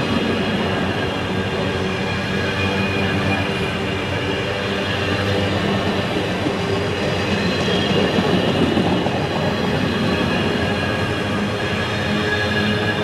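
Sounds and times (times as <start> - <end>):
freight train wheels rumbling on rail: 0.0 - 13.0.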